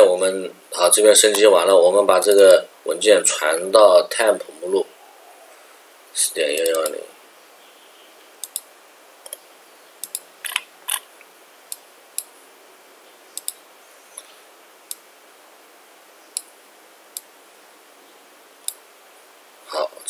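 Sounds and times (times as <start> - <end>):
faint steady hiss: 0.0 - 20.0
computer mouse clicking: 6.6 - 7.0, 8.4 - 9.4, 10.0 - 11.0, 13.4 - 13.6.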